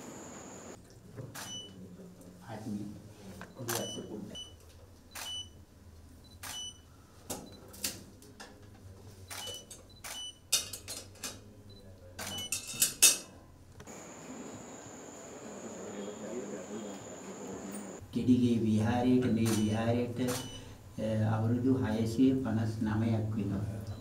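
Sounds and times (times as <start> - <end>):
high whine: 0.0 - 0.8.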